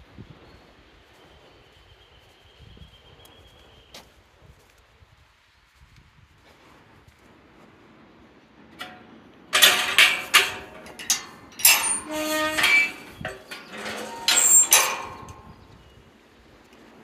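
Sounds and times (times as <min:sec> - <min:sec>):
metal gate clanging: 0:08.8 - 0:15.7.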